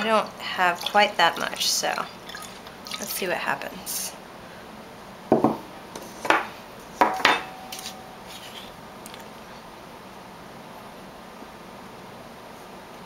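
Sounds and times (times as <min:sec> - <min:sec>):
glass clinking against ceramic plate: 0:07.0 - 0:08.0.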